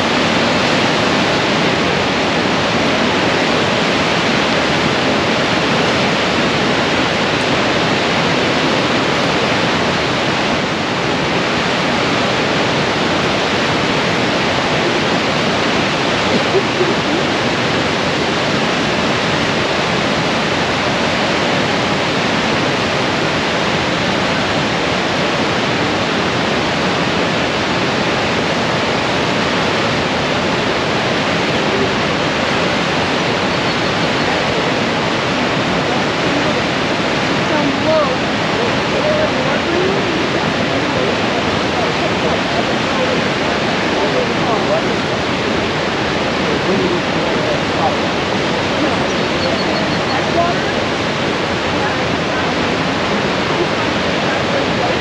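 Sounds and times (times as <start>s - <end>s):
whitewater rushing: 0.0s - 55.0s.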